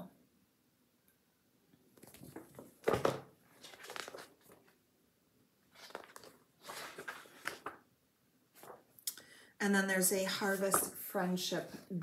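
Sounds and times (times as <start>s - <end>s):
paper pages rustling: 2.0s - 4.8s, 5.7s - 7.8s, 8.5s - 8.9s.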